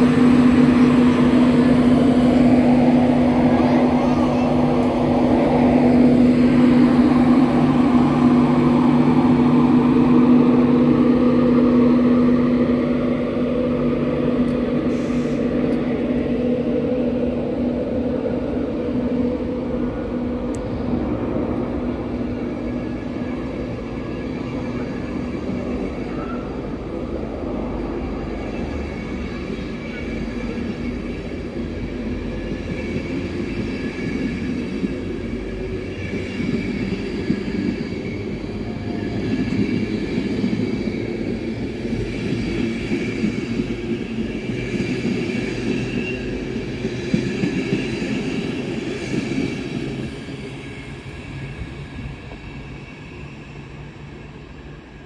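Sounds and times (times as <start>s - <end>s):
train wheels rumbling on rail: 0.0s - 55.0s.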